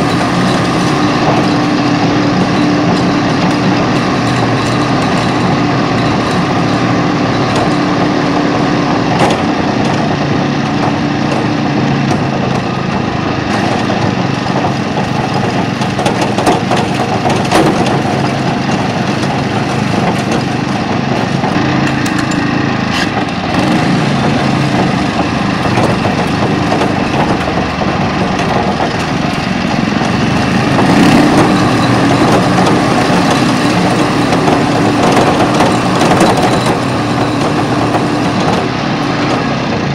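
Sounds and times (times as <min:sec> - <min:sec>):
sharp clicks and knocks: 0:00.0 - 0:39.9
walking tractor engine running: 0:00.0 - 0:39.9.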